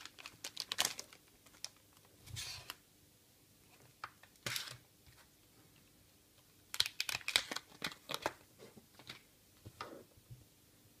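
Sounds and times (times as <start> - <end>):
plastic bag crinkling: 0.0 - 2.0.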